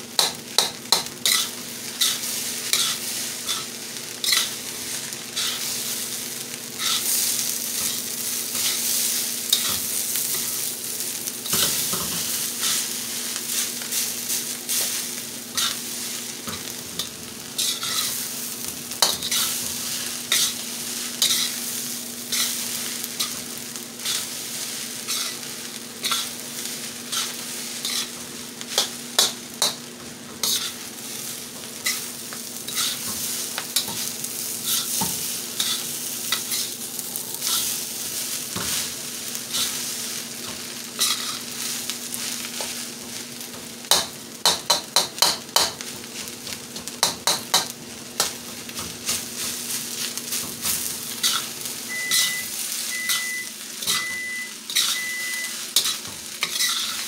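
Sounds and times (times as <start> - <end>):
food sizzling in a wok: 0.0 - 57.0
spatula scraping metal wok: 1.2 - 4.6, 5.4 - 5.7, 6.8 - 10.6, 16.5 - 18.3, 19.0 - 24.4, 25.0 - 29.8, 30.4 - 36.8, 37.4 - 42.6, 48.2 - 57.0
short electronic beeps: 51.9 - 55.5.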